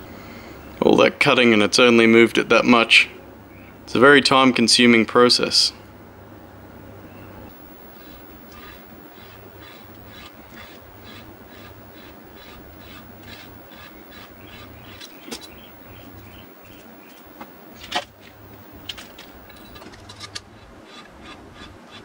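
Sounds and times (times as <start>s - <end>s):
valve seat cutter scraping: 7.5s - 16.4s.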